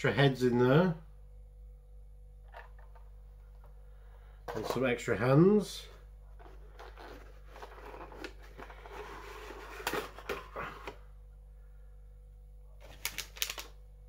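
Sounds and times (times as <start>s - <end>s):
cardboard and plastic rustling: 6.3s - 11.0s, 12.8s - 13.7s.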